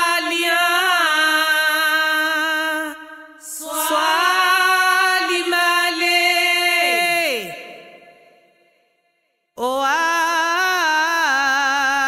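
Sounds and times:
person singing chant-like notes: 0.0s - 8.2s.

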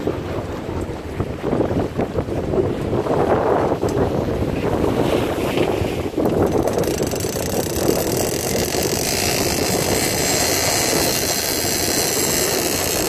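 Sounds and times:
sea noise: 0.0s - 13.0s
wind: 0.0s - 13.0s
boat engine running: 6.0s - 13.0s.

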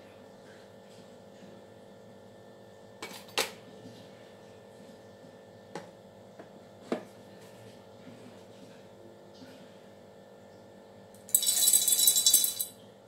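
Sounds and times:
jar clinking on a steel plate: 11.3s - 12.7s.

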